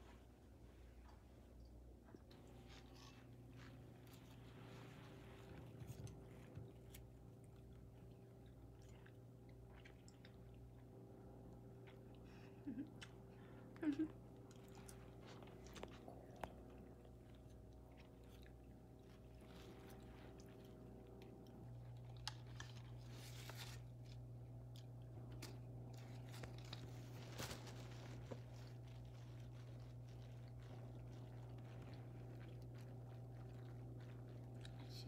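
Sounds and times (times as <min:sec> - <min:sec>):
steady low hum: 0:00.0 - 0:35.0
people chewing snacks: 0:01.0 - 0:35.0.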